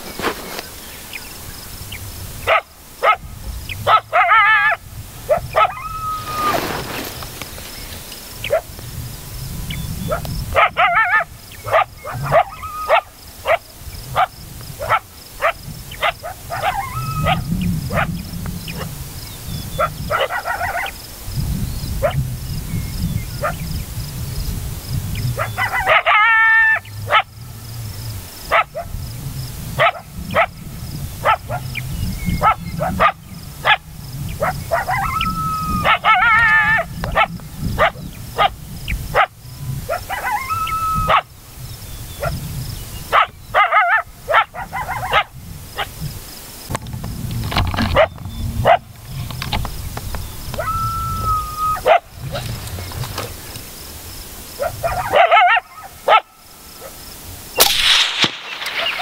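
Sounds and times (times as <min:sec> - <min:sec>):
low wind rumble: 0:00.0 - 0:59.0
coyote barking: 0:02.4 - 0:06.6, 0:08.4 - 0:08.7, 0:10.1 - 0:18.9, 0:19.8 - 0:21.0, 0:25.4 - 0:27.4, 0:28.5 - 0:29.0, 0:29.8 - 0:41.3, 0:43.1 - 0:45.9, 0:47.8 - 0:48.9, 0:50.6 - 0:52.5, 0:54.6 - 0:57.0, 0:57.6 - 0:59.0
coyote yip-howls: 0:03.8 - 0:06.5, 0:10.1 - 0:18.9, 0:19.7 - 0:21.0, 0:25.4 - 0:27.3, 0:29.8 - 0:30.6, 0:31.2 - 0:33.8, 0:34.4 - 0:39.3, 0:39.9 - 0:41.3, 0:43.1 - 0:45.9, 0:50.5 - 0:52.4, 0:54.6 - 0:57.0.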